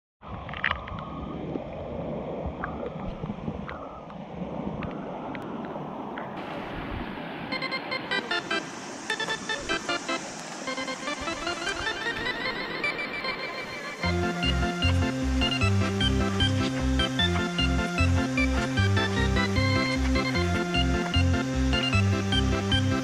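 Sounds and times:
river rushing over stones: 5.9 - 20.5
plucked melody music: 8.1 - 23.0.

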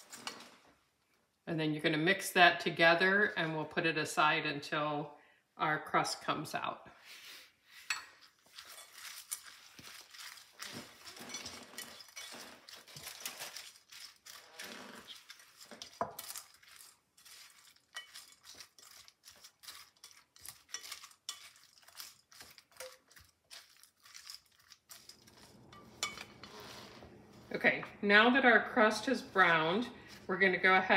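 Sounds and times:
spatula scraping glass bowl: 7.8 - 27.8.

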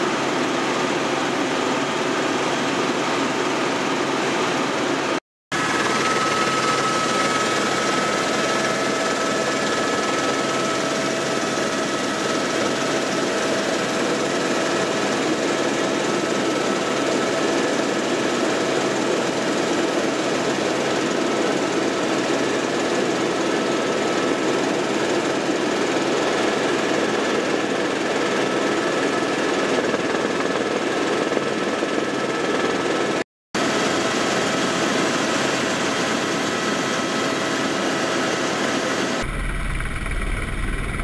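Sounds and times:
helicopter engine and rotor drone: 0.0 - 41.0
high whine: 39.2 - 41.0.

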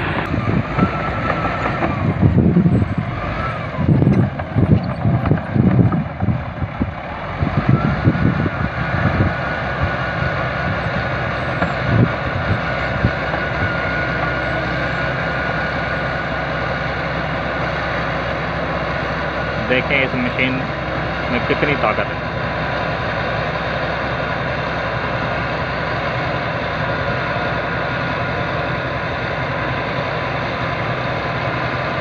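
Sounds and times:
bulldozer diesel engine under load: 0.0 - 32.0.

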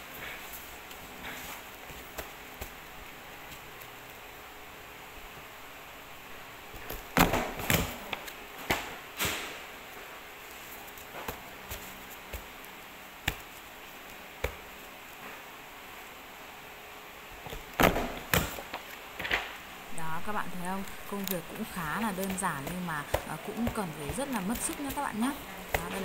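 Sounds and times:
paper rustling: 20.9 - 26.0.

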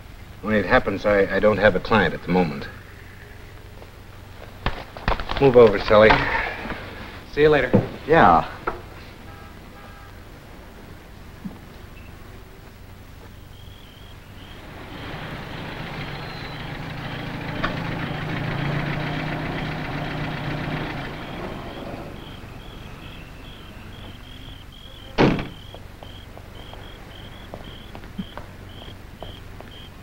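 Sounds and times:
car engine running: 14.4 - 27.9
car door slamming: 25.1 - 25.7.

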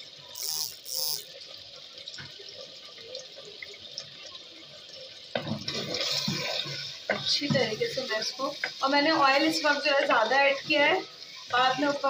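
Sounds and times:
food sizzling in oil: 0.0 - 1.4, 5.3 - 12.0.

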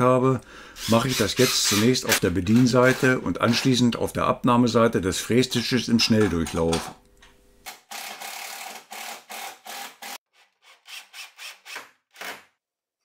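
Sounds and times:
cordless drill driving screws into wood: 7.7 - 10.2, 10.9 - 12.5.

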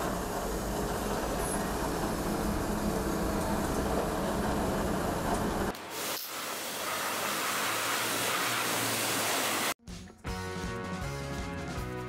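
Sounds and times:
pressure washer spraying water: 5.8 - 9.8.

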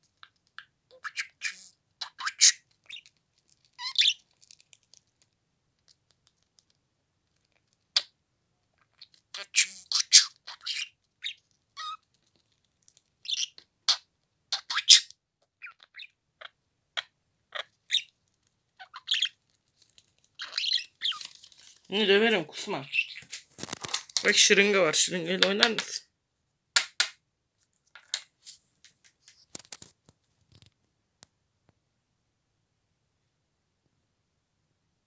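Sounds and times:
budgerigar chirping: 0.6 - 3.1, 3.8 - 4.2, 8.8 - 12.0, 13.2 - 18.1, 18.8 - 19.4, 20.4 - 21.3, 22.6 - 23.4.

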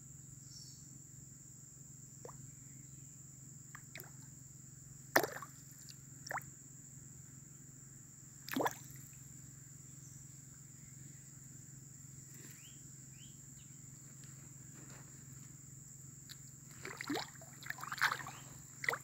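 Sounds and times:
high-pitched insect whine: 0.0 - 19.0
small plops on water: 3.8 - 4.2, 5.1 - 6.5, 8.5 - 9.0, 16.3 - 19.0.

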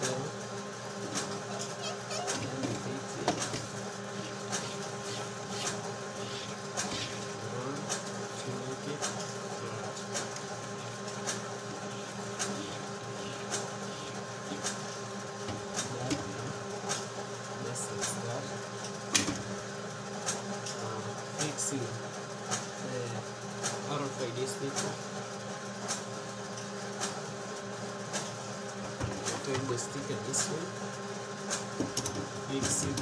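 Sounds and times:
background hum: 0.0 - 19.5.

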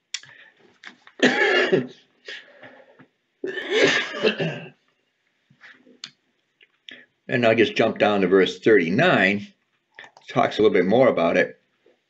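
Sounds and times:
man coughing: 1.2 - 2.0, 3.4 - 4.8.

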